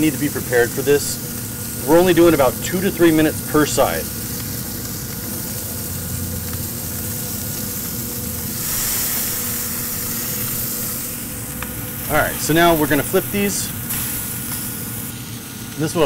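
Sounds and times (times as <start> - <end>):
fish steaks sizzling on griddle: 0.0 - 16.0
low hum: 5.0 - 15.1.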